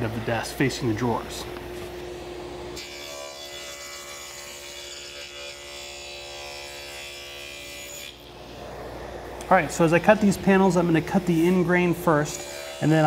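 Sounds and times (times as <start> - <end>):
table saw whining: 2.7 - 13.0.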